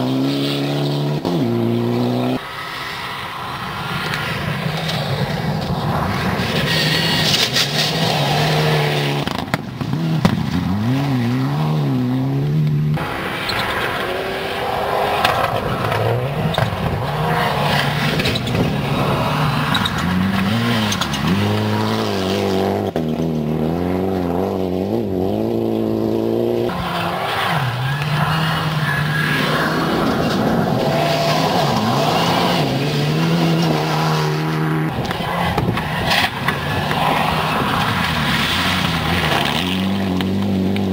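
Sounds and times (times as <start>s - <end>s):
rally car engines revving: 0.0s - 40.9s
tyres rushing on gravel: 26.7s - 40.9s.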